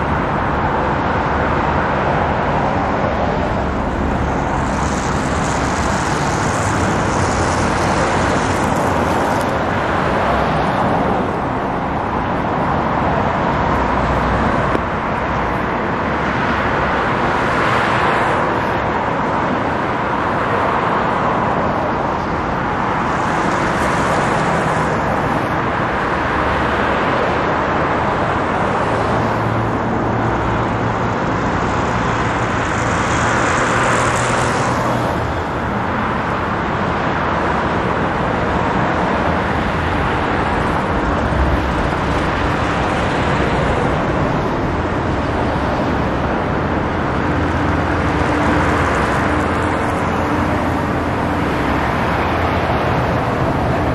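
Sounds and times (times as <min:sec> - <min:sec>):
cars passing: 0:00.0 - 0:53.9
traffic hiss: 0:03.6 - 0:15.7.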